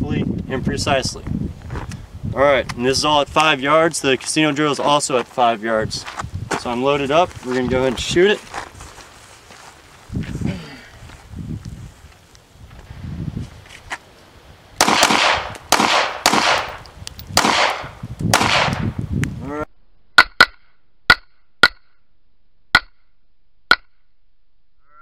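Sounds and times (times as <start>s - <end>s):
dry gunshot cracks: 14.8s - 16.8s, 17.4s - 18.9s
pistol shots echoing: 14.8s - 16.8s, 17.4s - 18.8s.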